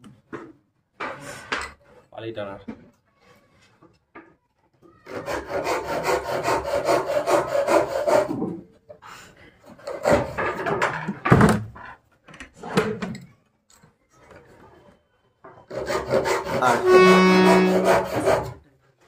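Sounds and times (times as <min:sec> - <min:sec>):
wood rubbing and knocking: 0:09.7 - 0:13.1, 0:15.5 - 0:18.6
harmonium reed note: 0:16.6 - 0:17.9.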